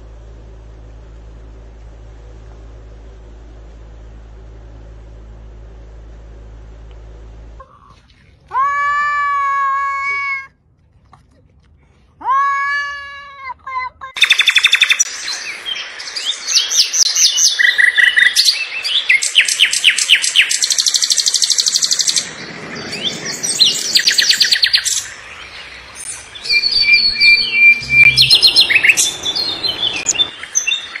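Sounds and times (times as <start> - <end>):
bird whistle: 14.2 - 15.1, 26.1 - 31.0
songbirds chirping and trilling: 14.2 - 31.0.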